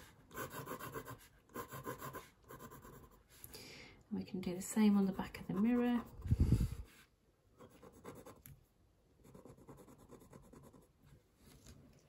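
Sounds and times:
pen scratching on paper: 0:00.0 - 0:03.2, 0:05.1 - 0:06.2, 0:07.6 - 0:08.5, 0:09.2 - 0:10.9.

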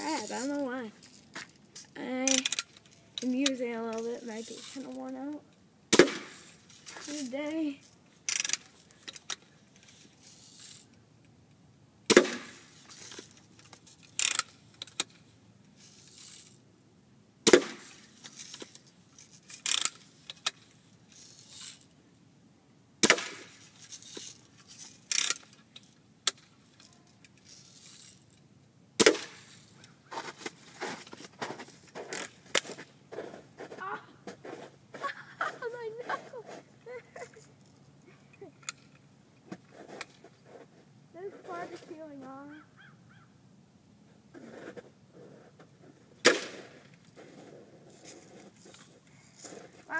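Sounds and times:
gun cocking clicks and rattles: 0:01.0 - 0:04.8, 0:08.3 - 0:09.4, 0:12.9 - 0:15.2, 0:18.2 - 0:20.6, 0:24.0 - 0:28.2, 0:38.6 - 0:39.1
bb gun shots: 0:05.9 - 0:06.4, 0:12.1 - 0:12.6, 0:17.4 - 0:17.9, 0:23.0 - 0:23.5, 0:29.0 - 0:29.4.

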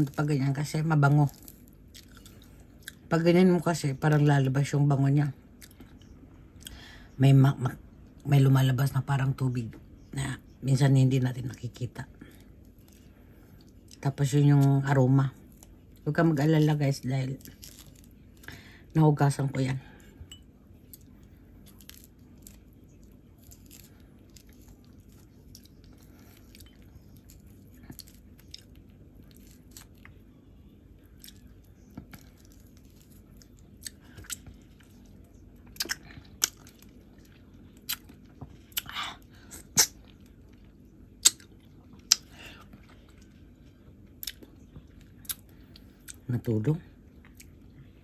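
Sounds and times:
faint low hum: 0:00.0 - 0:48.0
orange peel tearing and crackling: 0:12.3 - 0:18.7, 0:20.8 - 0:43.4.

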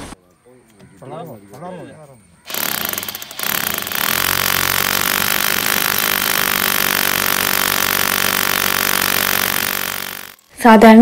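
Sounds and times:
hammer drill boring into concrete: 0:02.5 - 0:10.5.

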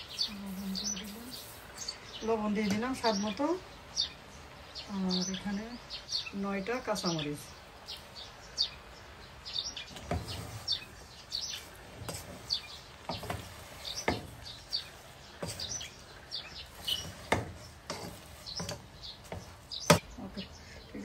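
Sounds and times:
small birds chirping: 0:00.0 - 0:21.0
wooden spatula stirring greens: 0:09.8 - 0:20.0.

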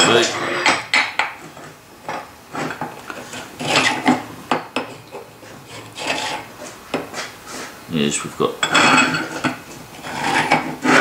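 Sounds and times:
metal tool scraping steel: 0:02.6 - 0:04.2, 0:05.6 - 0:06.5, 0:08.6 - 0:11.0.

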